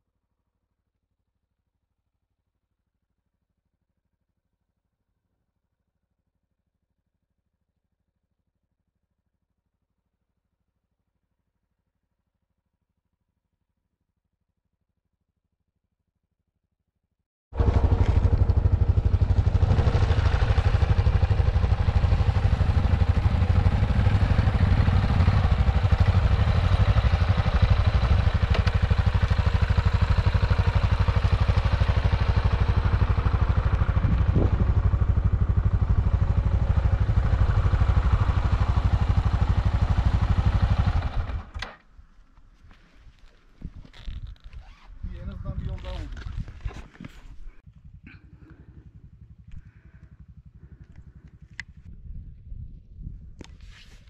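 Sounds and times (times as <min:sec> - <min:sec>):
motorcycle engine running: 0:17.6 - 0:41.8, 0:42.6 - 0:53.6.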